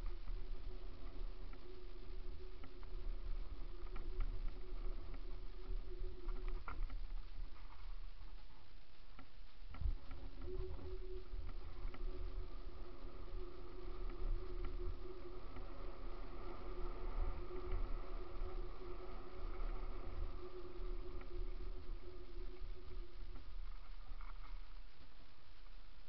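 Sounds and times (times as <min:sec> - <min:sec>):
faint clicks: 0:00.0 - 0:25.8
steady hum: 0:00.0 - 0:26.0.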